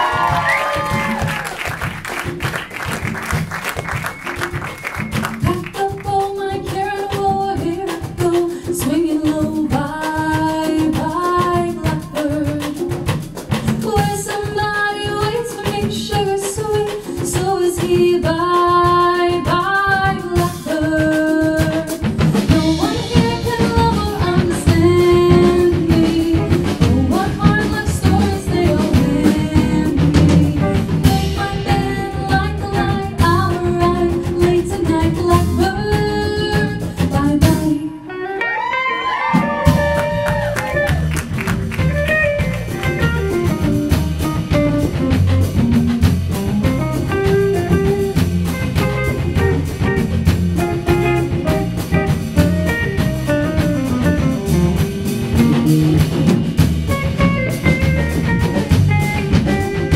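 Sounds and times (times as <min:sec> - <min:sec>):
live band playing samba: 0:00.0 - 0:59.9
woman singing: 0:05.4 - 0:38.4.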